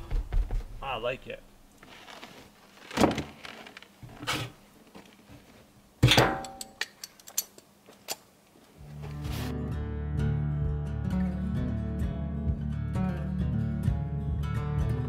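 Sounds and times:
guitar music: 8.8s - 15.0s.

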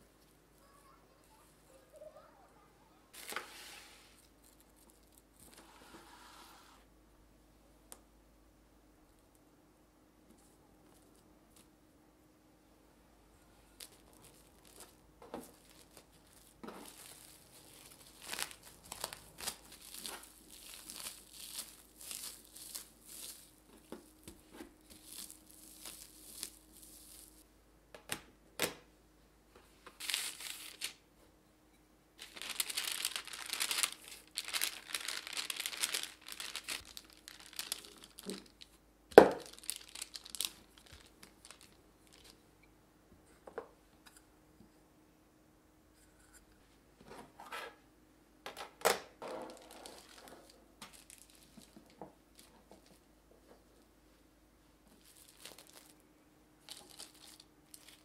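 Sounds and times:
plastic wrap crinkling: 3.1s - 5.6s, 13.6s - 27.4s, 30.0s - 31.0s, 32.2s - 42.4s, 49.5s - 53.0s, 54.9s - 56.0s, 56.6s - 58.0s.

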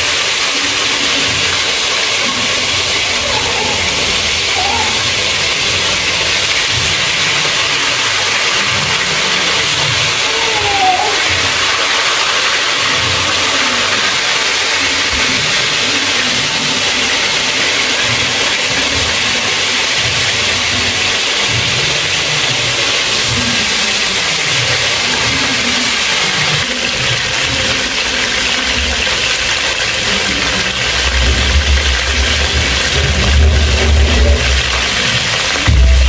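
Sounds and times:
meat sizzling in hot oil: 0.0s - 36.0s.

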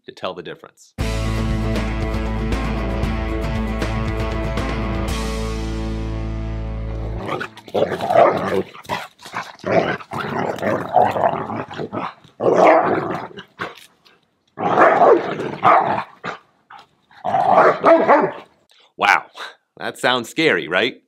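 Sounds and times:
dogs barking: 7.2s - 13.8s, 14.6s - 18.5s
dogs growling: 7.2s - 13.8s, 14.6s - 18.5s.

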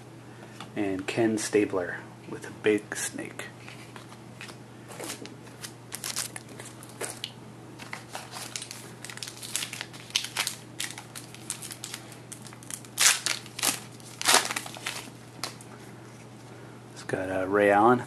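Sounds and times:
wrapper crinkling: 4.4s - 15.6s
wrapper ripping: 5.0s - 15.6s.

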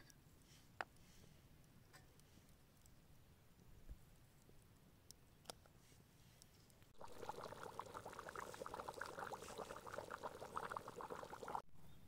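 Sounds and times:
stew boiling with bubbles popping: 7.0s - 11.7s.

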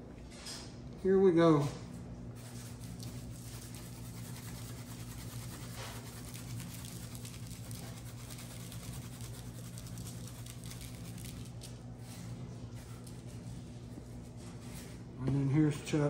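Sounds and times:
steady low hum: 0.0s - 16.0s
pepper grains pattering: 3.0s - 11.8s.

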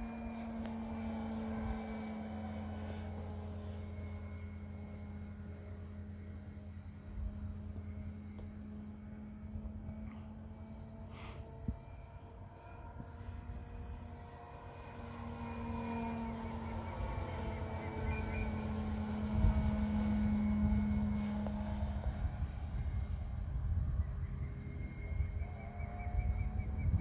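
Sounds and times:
model plane propeller whining: 0.0s - 27.0s.

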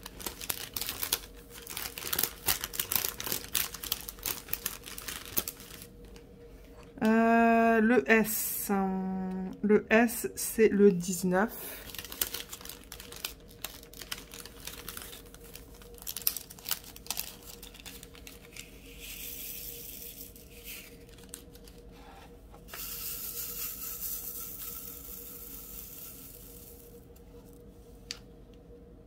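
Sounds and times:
plastic film crinkling: 0.0s - 6.2s, 11.8s - 21.9s.

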